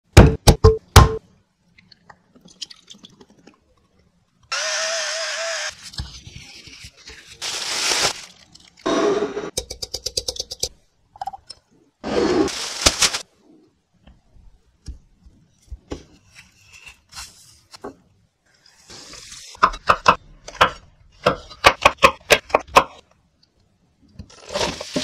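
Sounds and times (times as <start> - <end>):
cling film crinkling: 7.4 - 8.9, 12.5 - 13.3.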